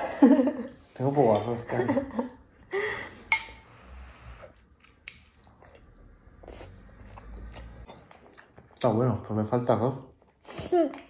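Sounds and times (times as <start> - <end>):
chewing food: 4.6 - 9.1.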